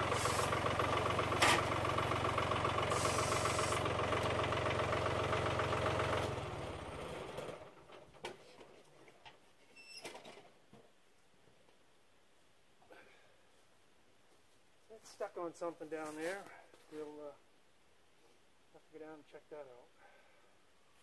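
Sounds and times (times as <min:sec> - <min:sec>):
tractor engine running: 0:00.0 - 0:08.0.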